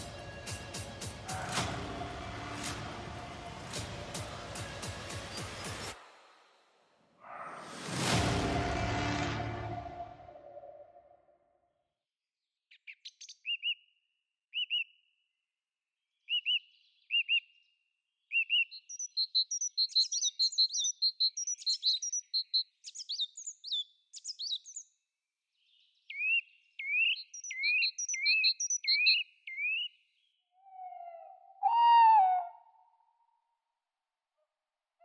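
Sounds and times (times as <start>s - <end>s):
songbird singing: 12.7s - 15.1s, 16.0s - 33.1s.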